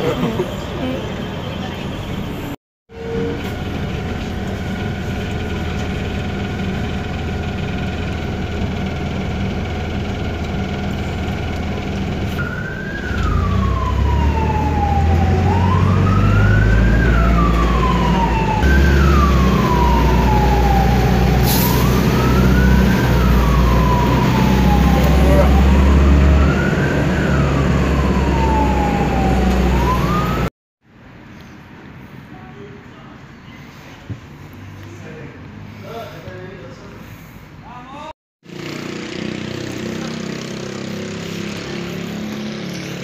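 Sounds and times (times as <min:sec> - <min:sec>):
bus engine drone and rumble: 0:00.0 - 0:30.5
emergency siren wailing: 0:02.9 - 0:30.5.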